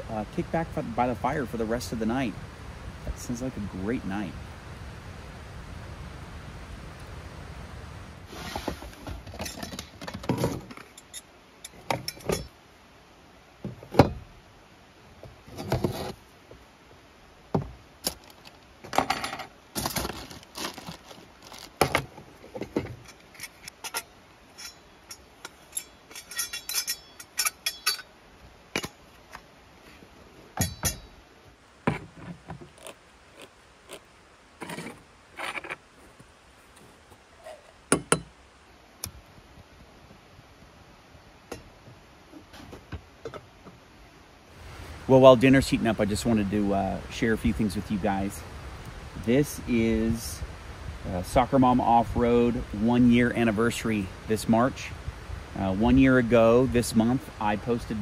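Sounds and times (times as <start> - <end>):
metal camp cookware clinking: 9.3 - 12.6, 23.0 - 29.0, 30.6 - 31.2.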